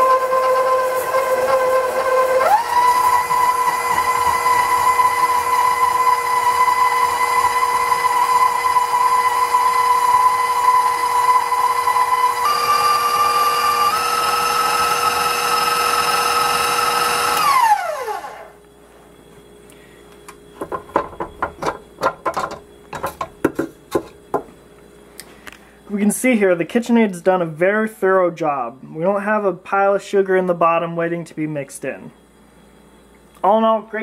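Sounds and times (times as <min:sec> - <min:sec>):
stand mixer motor whine: 0:00.0 - 0:18.6.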